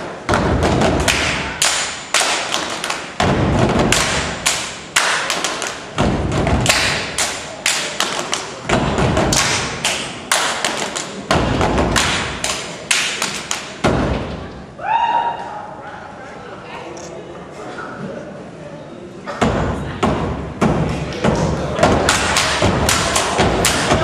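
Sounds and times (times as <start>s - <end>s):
hands clapping: 0.8s - 13.8s, 21.0s - 24.0s
feet stomping: 2.4s - 4.5s, 8.7s - 9.8s.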